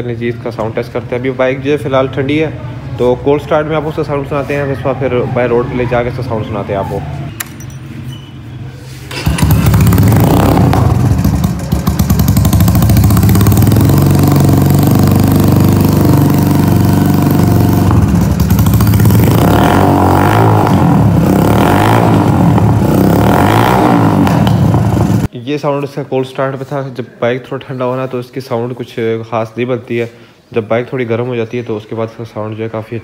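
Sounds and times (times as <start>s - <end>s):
motorcycle engine starting and idling: 9.0s - 25.3s.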